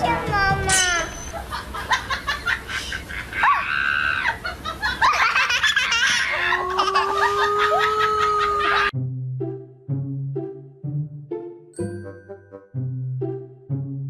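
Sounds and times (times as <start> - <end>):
high-pitched comedy laughter: 1.2 - 8.9.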